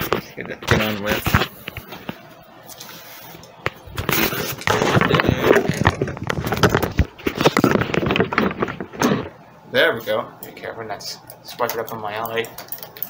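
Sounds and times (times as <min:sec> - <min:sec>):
rustling and crackling: 0:00.0 - 0:09.4
muffled voices: 0:00.0 - 0:12.6
scattered clicks: 0:11.3 - 0:13.0.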